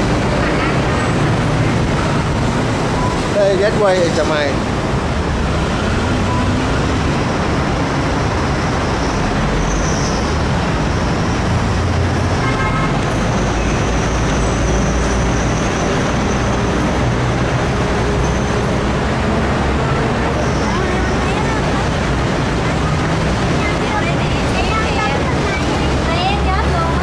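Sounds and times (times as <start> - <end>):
city traffic noise: 0.0 - 27.0
short beep: 6.2 - 6.6.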